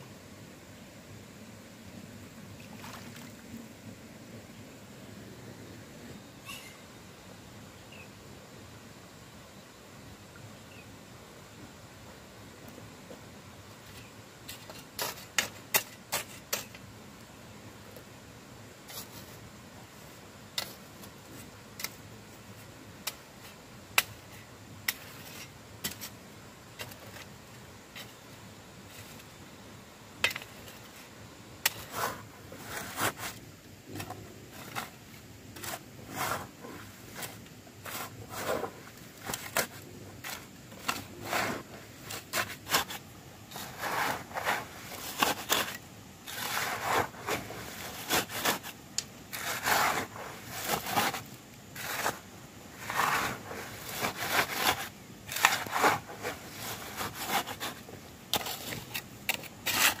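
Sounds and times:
hand tool scraping wood: 31.6 - 33.4, 35.6 - 60.0.

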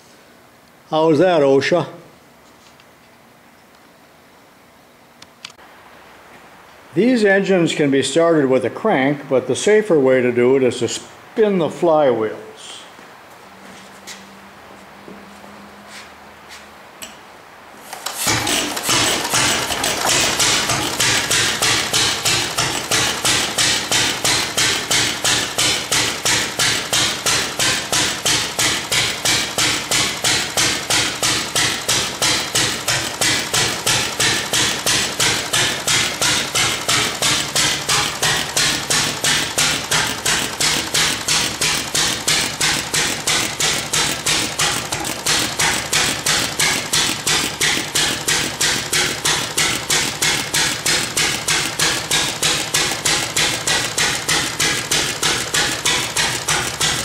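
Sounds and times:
single-cylinder engine running: 17.8 - 57.0.

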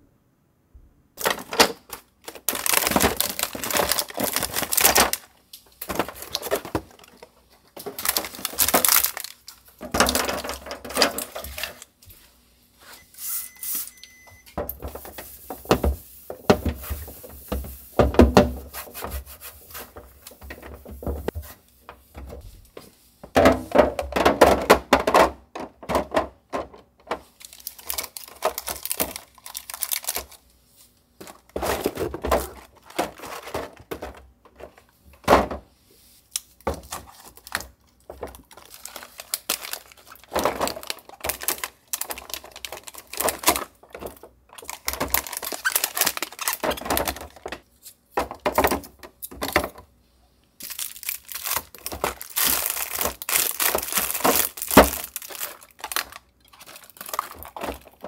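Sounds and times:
plastic packaging crinkling: 1.2 - 12.0, 27.2 - 30.5, 31.2 - 34.8, 36.3 - 48.0, 50.6 - 58.0.

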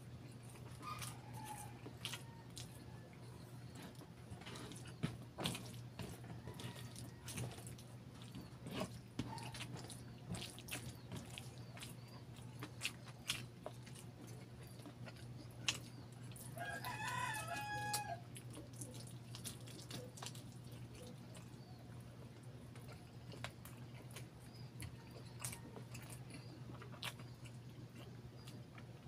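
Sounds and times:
wet chewing and lip smacks: 0.1 - 29.0
rooster crowing: 6.4 - 7.5, 16.6 - 18.3.

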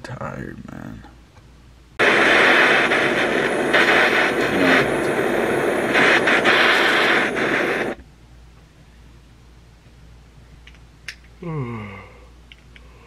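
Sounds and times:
butane torch hissing: 2.0 - 8.0.

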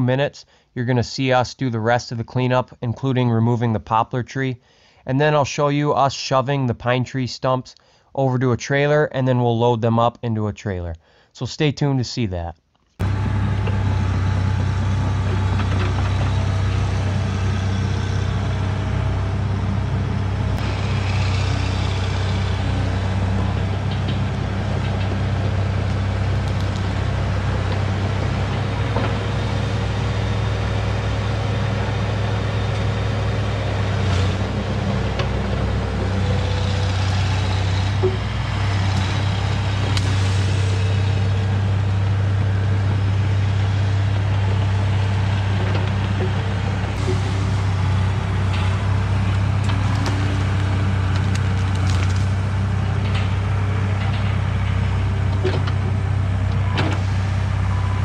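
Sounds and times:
diesel engine of heavy machinery: 13.0 - 58.0.

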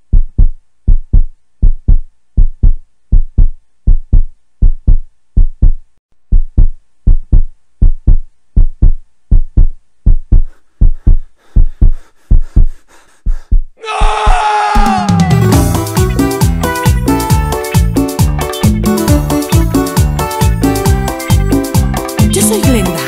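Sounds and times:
heartbeat thumps: 0.0 - 15.0.

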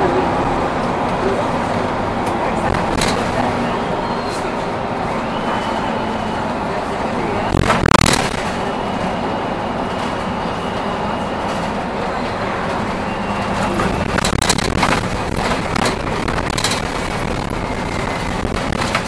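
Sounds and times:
bus engine and road noise: 0.0 - 19.0
rattles and knocks: 13.8 - 17.4.

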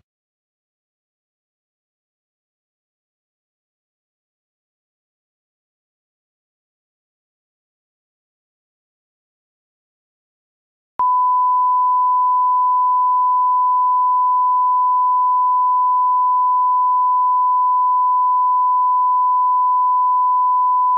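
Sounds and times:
steady electronic test tone: 11.0 - 20.9.

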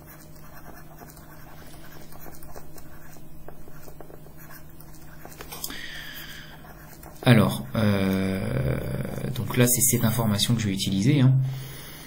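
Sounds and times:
stylus tapping and scratching: 0.0 - 8.4.

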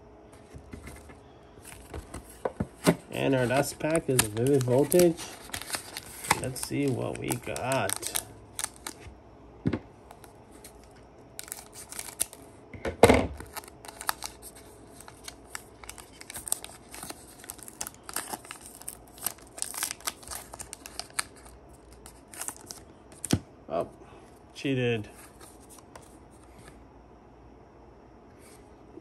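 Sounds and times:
foil wrapper crinkling: 3.1 - 9.1, 10.1 - 12.5, 13.3 - 23.3.

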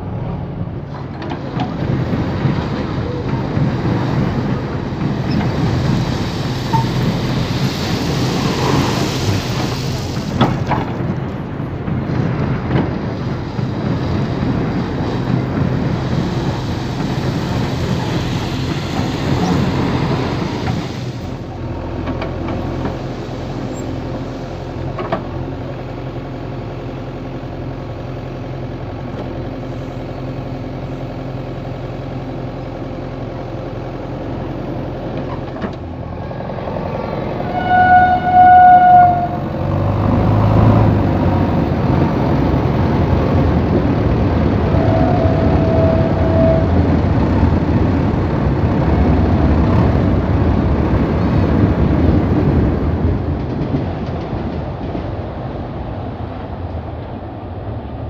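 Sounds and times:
diesel engine running: 0.0 - 53.8
loud horn blast: 37.4 - 39.9, 44.7 - 47.0.

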